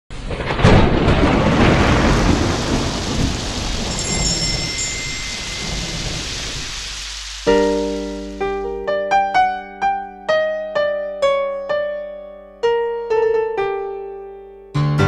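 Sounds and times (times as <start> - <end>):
thunder rumbling: 0.1 - 8.7
steady rain: 0.1 - 9.6
small bell ringing: 3.9 - 6.2.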